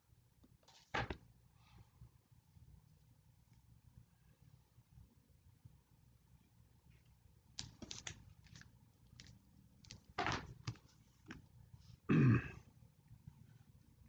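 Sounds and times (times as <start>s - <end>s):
person making throaty sound: 12.1s - 12.6s.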